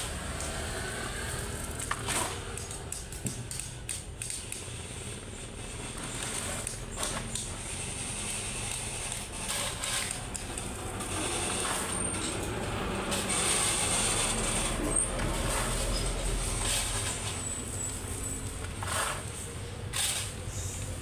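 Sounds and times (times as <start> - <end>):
truck engine rumble: 0.0 - 21.0
shovel scraping gravel: 5.8 - 20.8.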